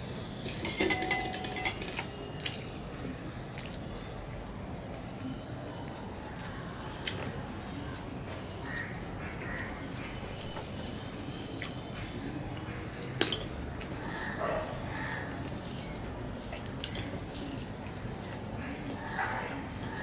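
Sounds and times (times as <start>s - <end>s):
chewing with lip smacks: 3.5s - 5.2s.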